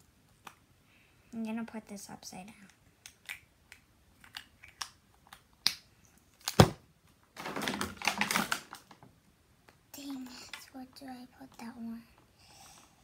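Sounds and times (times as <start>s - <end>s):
plastic packaging crinkling: 7.4s - 9.1s.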